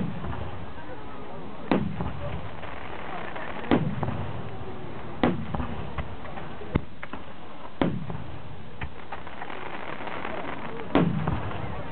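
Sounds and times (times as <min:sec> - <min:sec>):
firework booms with rumbling tail: 0:00.0 - 0:00.7, 0:01.7 - 0:11.9
small firework cracks: 0:01.6 - 0:11.9
sharp firework pop: 0:07.8 - 0:08.2.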